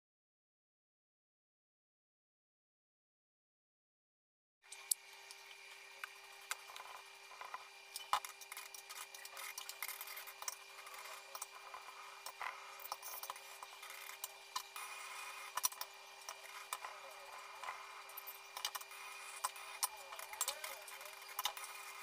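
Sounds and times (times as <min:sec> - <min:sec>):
steady hum: 0:04.7 - 0:22.0.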